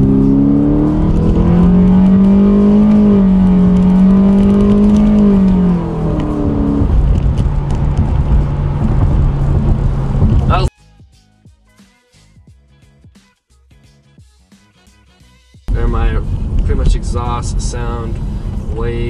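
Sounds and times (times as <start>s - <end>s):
car engine accelerating: 0.0s - 10.7s
road noise: 0.0s - 10.7s, 15.7s - 19.0s.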